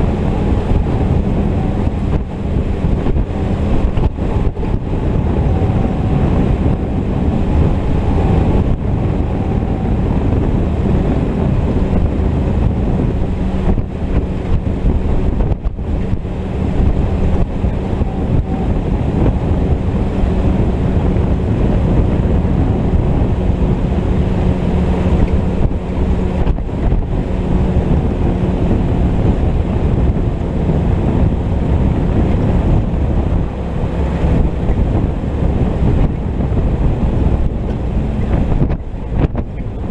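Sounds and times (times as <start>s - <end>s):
jeep engine running: 0.0s - 39.9s
wind noise on microphone: 0.0s - 39.9s.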